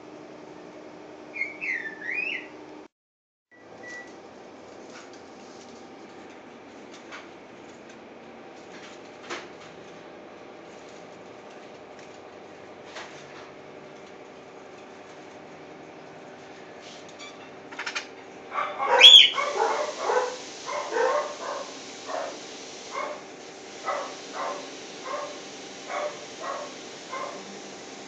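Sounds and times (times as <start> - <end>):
bird harsh croaking calls: 18.7 - 20.0.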